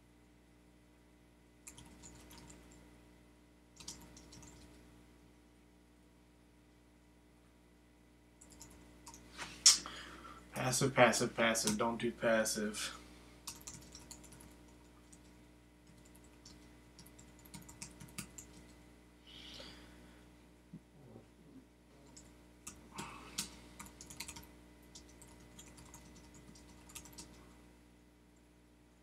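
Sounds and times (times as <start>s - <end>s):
faint typing on keyboard: 1.6s - 2.9s, 3.8s - 4.8s, 8.4s - 9.3s, 11.4s - 11.9s, 13.4s - 18.8s, 22.0s - 27.6s.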